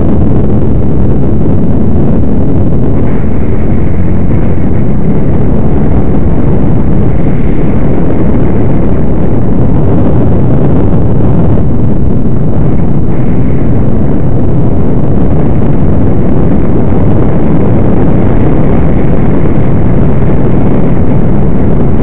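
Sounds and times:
quad engine droning: 0:00.0 - 0:22.0.

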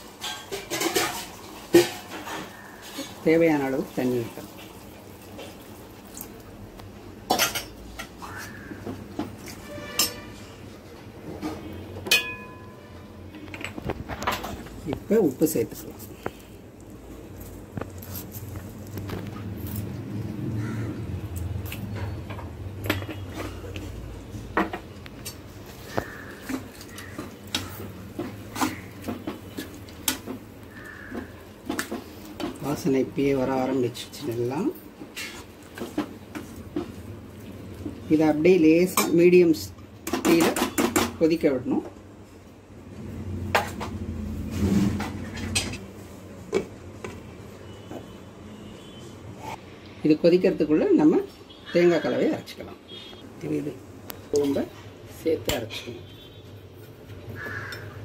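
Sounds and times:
ladle clinking against pan: 0:12.1 - 0:12.9.

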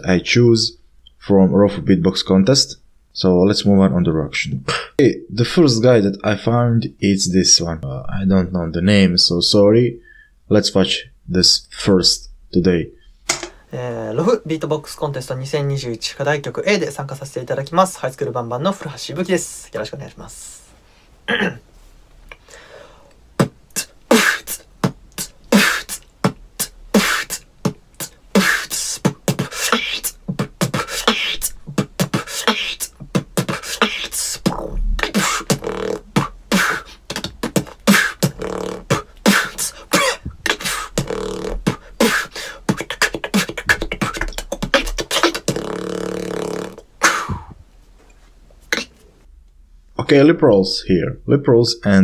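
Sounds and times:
person beatboxing: 0:23.4 - 0:47.6, 0:48.7 - 0:49.0.

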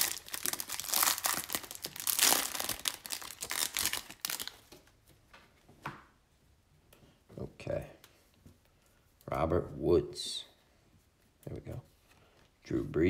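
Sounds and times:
plastic wrapper crinkling and tearing: 0:00.0 - 0:04.8.

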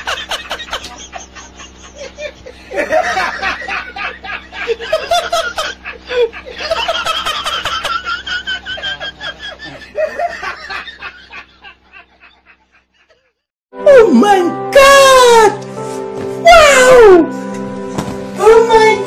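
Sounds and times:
man laughing hard: 0:00.0 - 0:13.4.

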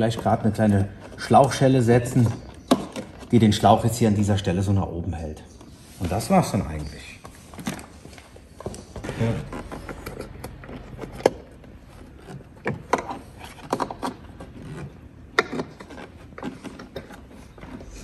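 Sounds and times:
plastic parts clicking and knocking: 0:00.0 - 0:04.2, 0:07.6 - 0:18.0
handling noise: 0:05.6 - 0:18.0.

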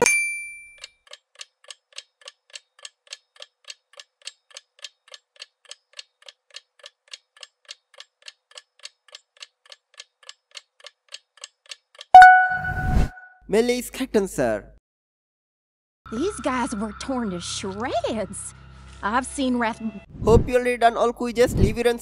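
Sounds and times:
clock ticking: 0:01.0 - 0:12.4
countdown timer ticking: 0:12.1 - 0:12.9
bell-like chime: 0:12.2 - 0:13.0.

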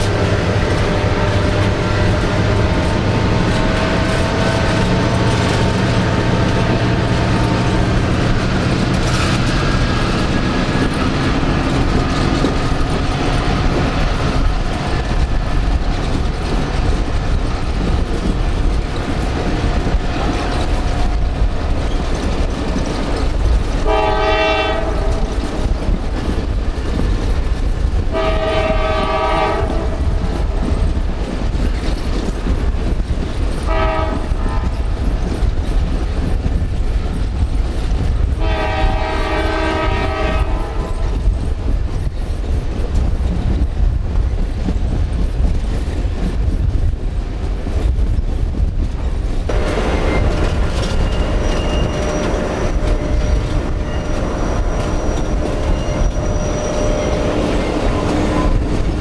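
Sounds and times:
train horn blasts: 0:00.0 - 0:07.4, 0:23.8 - 0:25.4, 0:28.1 - 0:30.2, 0:33.6 - 0:34.9, 0:38.4 - 0:41.2, 0:49.5 - 0:58.8
train rumbling: 0:00.0 - 0:59.0.

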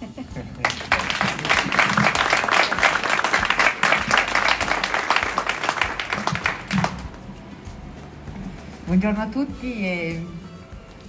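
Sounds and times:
people applauding: 0:00.6 - 0:07.3.

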